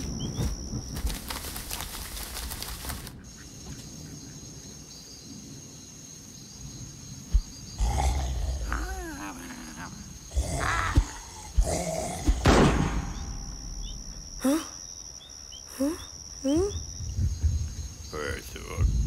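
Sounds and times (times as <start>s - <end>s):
rustling: 0.0s - 3.2s
high insect chirring: 0.0s - 19.0s.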